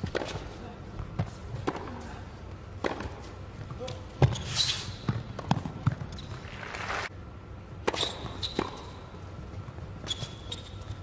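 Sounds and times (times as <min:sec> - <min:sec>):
tennis ball bouncing: 0:00.0 - 0:02.1, 0:02.8 - 0:06.2, 0:07.8 - 0:09.0
court shoes squeaking: 0:02.8 - 0:06.7, 0:07.8 - 0:11.0.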